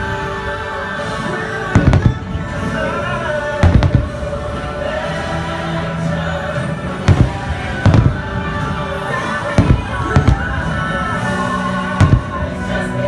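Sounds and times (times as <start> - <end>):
music: 0.0 - 13.0
fireworks bangs: 1.6 - 4.9, 7.0 - 12.9.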